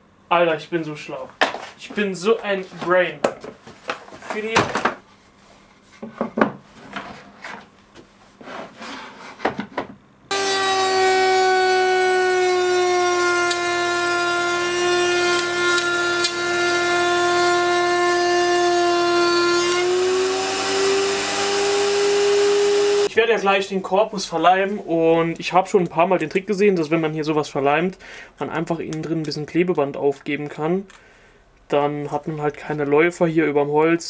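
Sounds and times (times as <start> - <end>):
router whining: 10.3 - 23.1.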